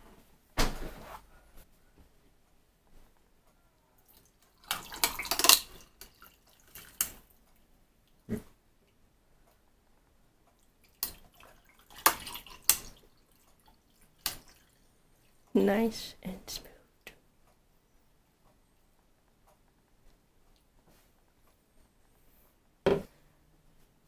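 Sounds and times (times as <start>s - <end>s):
juice pouring over ice: 4.5s - 7.1s.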